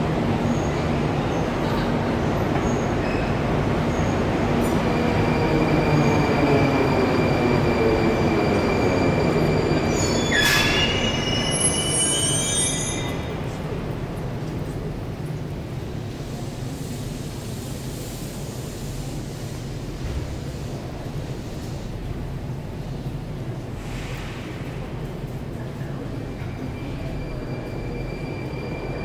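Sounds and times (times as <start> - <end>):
train wheels rumbling on rail: 0.0 - 29.0
high brake squeal: 4.9 - 13.4.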